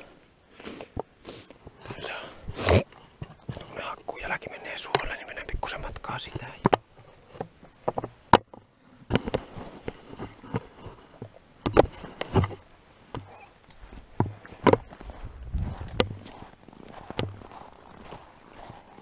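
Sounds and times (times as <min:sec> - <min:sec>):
footsteps on frozen ground: 0:09.1 - 0:12.6, 0:13.2 - 0:19.0.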